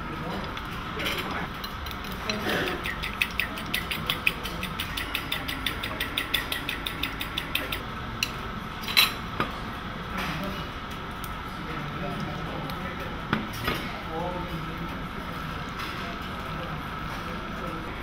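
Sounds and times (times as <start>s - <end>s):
fork beating eggs in bowl: 1.5s - 7.8s.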